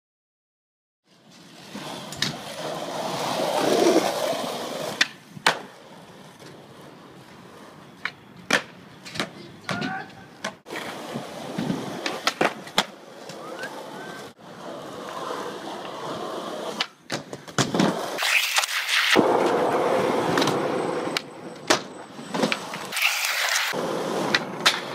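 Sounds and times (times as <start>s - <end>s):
skateboard wheels rolling on concrete: 1.0s - 24.9s
skateboard deck clacking: 3.6s - 5.8s, 8.0s - 14.3s, 16.6s - 24.9s.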